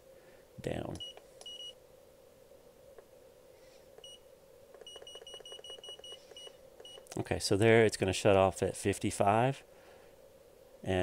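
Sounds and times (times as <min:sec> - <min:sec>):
thermostat beeping: 0:04.0 - 0:04.2, 0:04.8 - 0:07.1.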